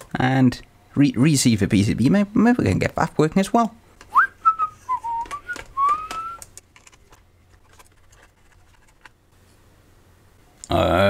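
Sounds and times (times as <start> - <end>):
person whistling: 4.1 - 6.5.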